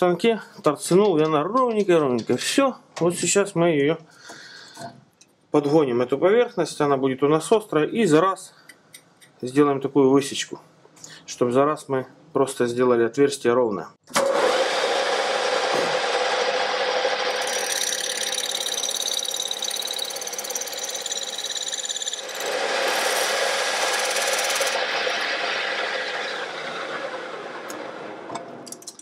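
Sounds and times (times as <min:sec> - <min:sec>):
high whine of cutter on steel: 0:14.2 - 0:28.4
metal lathe running: 0:15.2 - 0:27.9.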